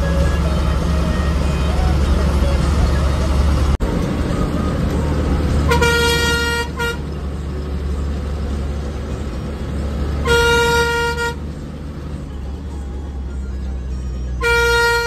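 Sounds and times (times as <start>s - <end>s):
bus engine drone: 0.0s - 15.0s
bus horn blasts: 5.5s - 7.3s, 10.1s - 11.7s, 14.3s - 15.0s.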